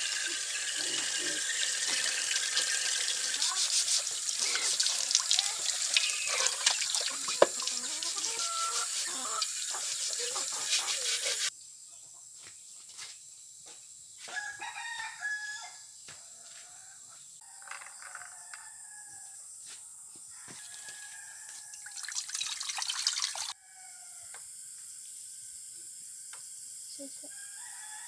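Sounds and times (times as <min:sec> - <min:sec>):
chickens clucking: 0:06.0 - 0:11.5
rooster crowing: 0:14.2 - 0:19.4, 0:20.3 - 0:22.2, 0:23.5 - 0:24.4, 0:27.3 - 0:28.0.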